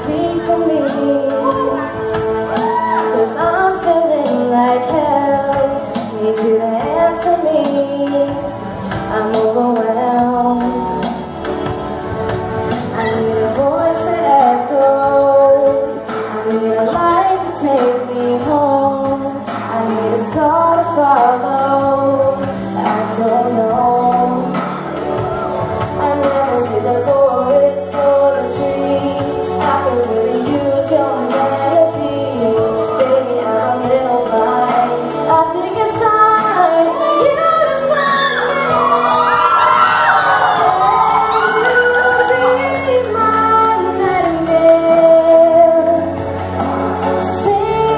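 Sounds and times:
instrumental accompaniment: 0:00.0 - 0:47.9
woman singing a pop ballad: 0:00.0 - 0:47.9
audience whooping and cheering: 0:01.4 - 0:03.4, 0:36.9 - 0:43.4.

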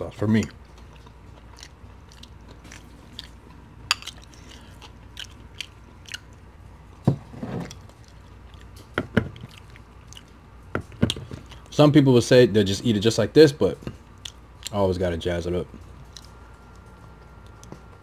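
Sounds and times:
chewing and mouth smacks: 0:00.4 - 0:06.5, 0:07.7 - 0:11.7, 0:13.8 - 0:14.8, 0:15.7 - 0:17.8.

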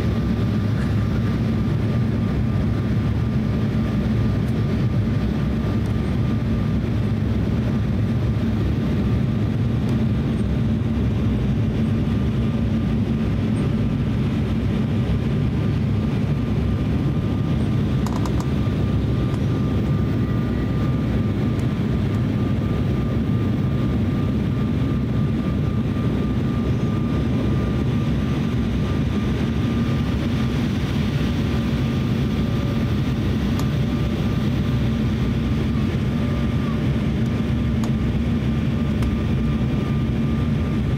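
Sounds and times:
jet engines rumbling in cabin: 0:00.0 - 0:40.9
thin steady whine: 0:00.0 - 0:40.9.

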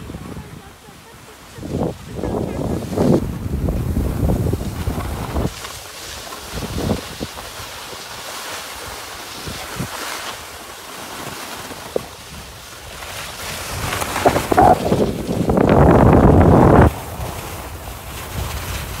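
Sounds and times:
wind buffeting microphone: 0:00.0 - 0:05.8, 0:06.4 - 0:07.8, 0:11.9 - 0:19.0
skis hissing over snow: 0:00.1 - 0:19.0.

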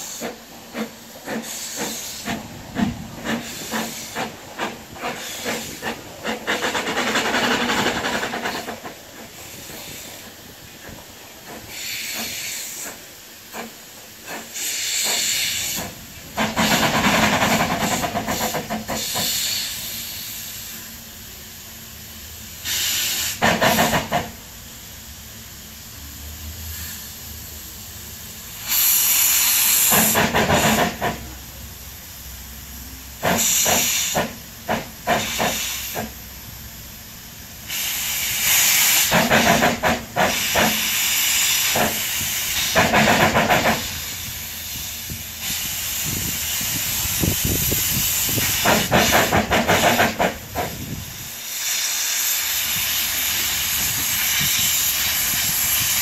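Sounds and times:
steam hissing bursts: 0:00.0 - 0:56.0
steam locomotive chuffing: 0:00.0 - 0:56.0.

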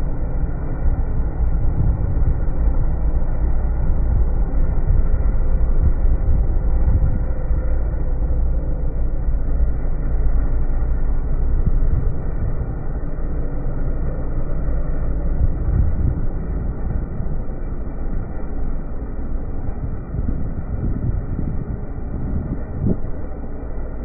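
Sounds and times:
snowmobile engine rumble: 0:00.0 - 0:24.0.

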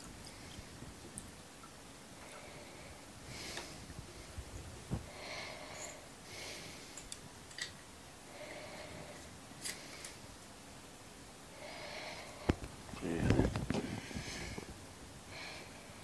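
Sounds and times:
man breathing: 0:02.2 - 0:07.0, 0:13.7 - 0:14.7.

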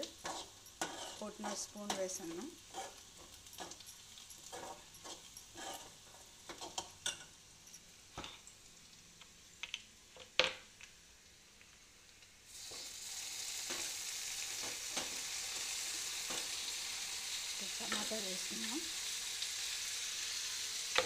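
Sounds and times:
spoon scraping a pan: 0:00.0 - 0:07.4, 0:13.6 - 0:14.0, 0:14.6 - 0:16.8, 0:17.4 - 0:19.1
onions frying in oil: 0:00.0 - 0:21.0.

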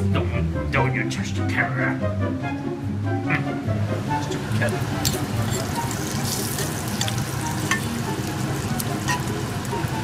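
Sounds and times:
bacon sizzling in a frying pan: 0:04.2 - 0:10.0
fat popping and crackling: 0:04.2 - 0:10.0.

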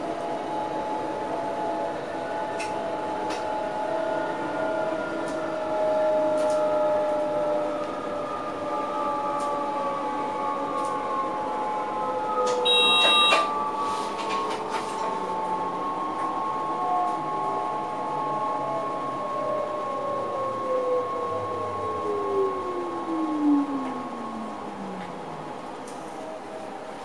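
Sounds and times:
electric train drive whining: 0:00.0 - 0:27.0
short electronic beep: 0:12.7 - 0:13.5.

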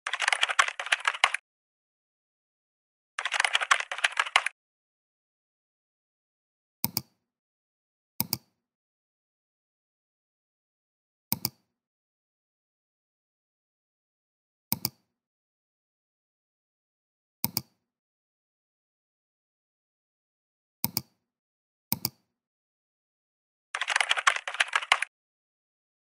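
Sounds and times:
keyboard typing clicks: 0:00.1 - 0:01.4, 0:03.2 - 0:04.5, 0:23.8 - 0:25.1
mouse clicks: 0:06.8 - 0:07.2, 0:08.2 - 0:08.5, 0:11.3 - 0:11.6, 0:14.7 - 0:15.0, 0:17.4 - 0:17.8, 0:20.8 - 0:21.2, 0:21.9 - 0:22.2.

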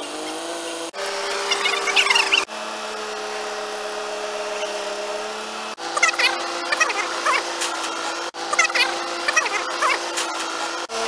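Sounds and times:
hydraulic crane whine: 0:00.0 - 0:11.0
high squeaks: 0:01.4 - 0:02.5.

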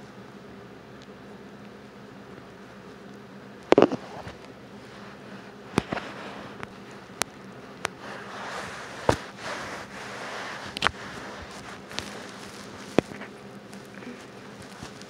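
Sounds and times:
fur rubbing against microphone: 0:03.7 - 0:06.7, 0:07.9 - 0:15.0
steady hiss: 0:03.7 - 0:15.0.

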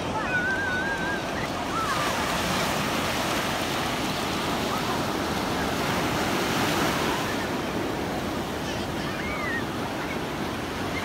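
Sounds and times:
ocean surf breaking: 0:00.0 - 0:11.0.

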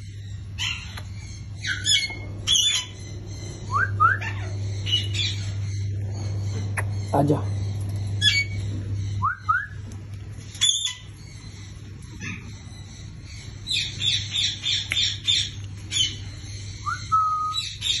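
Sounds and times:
parrot chirps: 0:00.6 - 0:05.8
parrot squawk: 0:01.6 - 0:03.0, 0:04.0 - 0:05.5
parrot whistling: 0:03.7 - 0:05.3, 0:09.2 - 0:09.8, 0:16.8 - 0:17.8.

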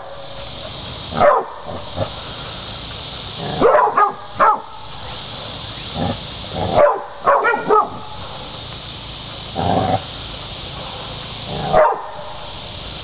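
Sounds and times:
dogs barking: 0:01.2 - 0:01.9, 0:03.5 - 0:04.8, 0:06.6 - 0:08.4, 0:10.7 - 0:12.4.

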